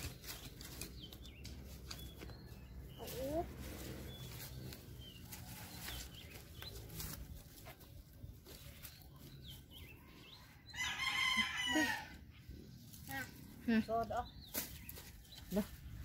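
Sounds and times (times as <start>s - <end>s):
rooster crowing: 10.7s - 12.1s.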